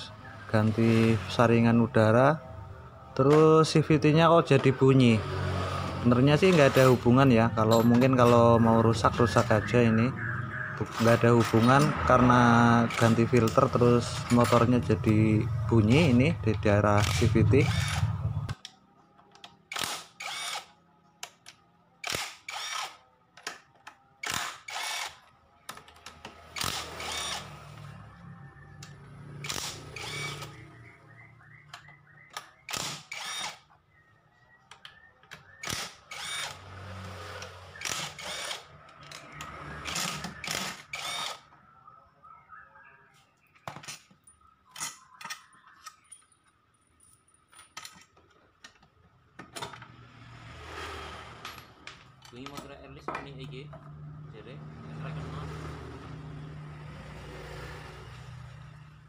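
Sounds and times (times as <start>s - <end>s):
cordless power driver spinning bolts: 17.0s - 18.2s, 19.7s - 20.7s, 22.0s - 23.0s, 24.2s - 25.2s, 26.4s - 27.5s, 29.4s - 30.6s, 32.7s - 33.7s, 35.6s - 36.6s, 37.4s - 41.5s.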